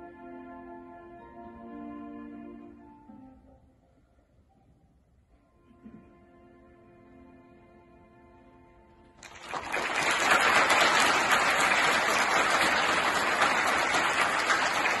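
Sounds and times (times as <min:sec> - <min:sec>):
audience applause: 0:09.2 - 0:15.0.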